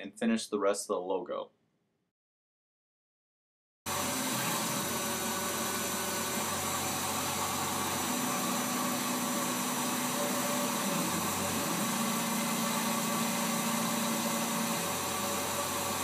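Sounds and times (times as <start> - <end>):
milling machine spindle whirring: 3.9 - 16.0.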